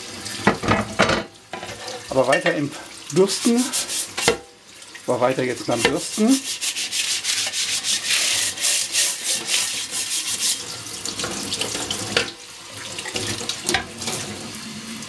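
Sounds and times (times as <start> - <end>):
tap water running into sink: 0.0 - 15.0
dish brush scrubbing grill plate: 1.6 - 4.4, 5.2 - 12.4.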